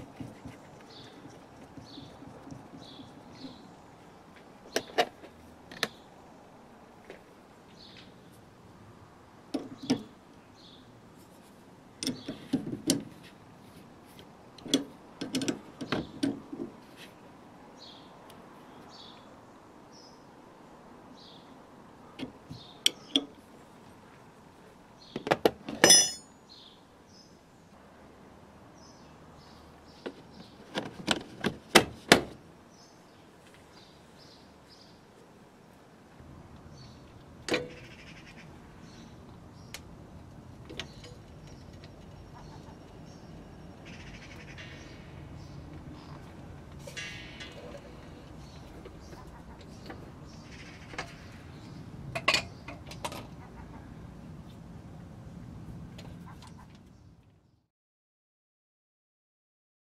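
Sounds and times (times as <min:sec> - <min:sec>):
spanner clinking on metal nuts: 0:25.7 - 0:26.3
ringing metal clink: 0:25.8 - 0:26.3.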